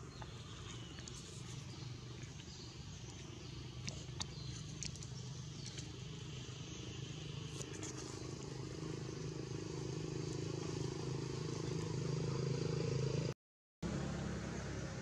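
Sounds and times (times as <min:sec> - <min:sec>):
steady low hum: 0:00.0 - 0:13.3.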